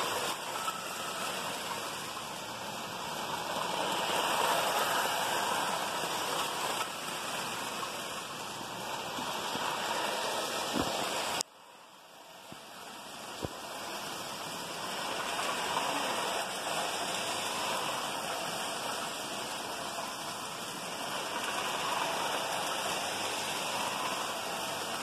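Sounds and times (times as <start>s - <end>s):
toy train rattling on track: 0.0s - 25.0s.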